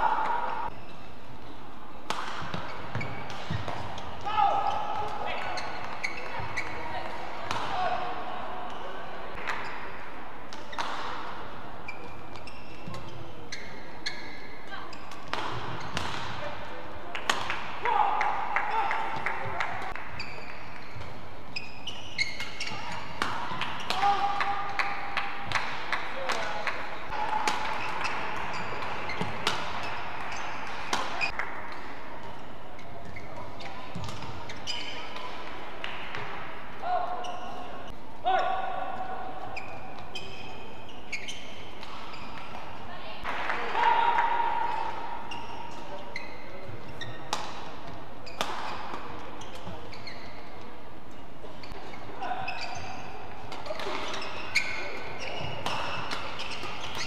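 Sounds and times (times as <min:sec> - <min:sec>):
court shoes squeaking: 0:00.0 - 0:43.4, 0:44.2 - 0:57.0
rackets striking shuttlecock: 0:02.0 - 0:04.0, 0:17.2 - 0:17.7, 0:22.4 - 0:32.3, 0:48.3 - 0:49.8, 0:53.5 - 0:57.0.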